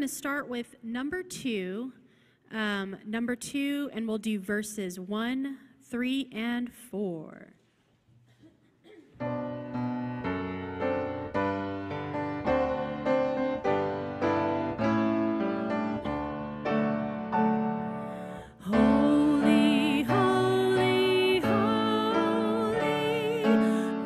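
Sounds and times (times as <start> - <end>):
grand piano playing: 9.2 - 24.0
woman singing a hymn: 18.4 - 24.0.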